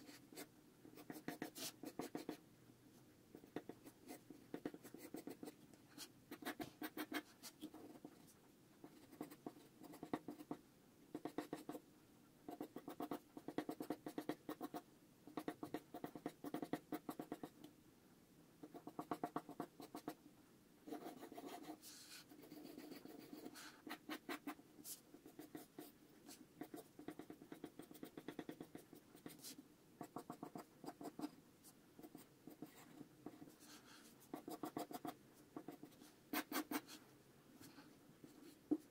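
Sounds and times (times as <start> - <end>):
pencil sketching on paper: 0.0 - 2.4, 3.4 - 8.1, 20.9 - 31.3, 32.0 - 37.0.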